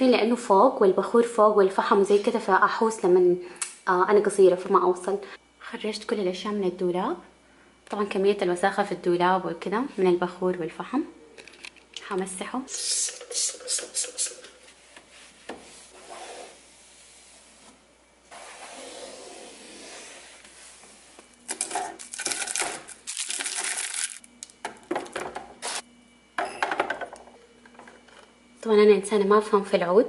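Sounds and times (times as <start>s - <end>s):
cloth wiping a shelf: 14.6s - 21.2s.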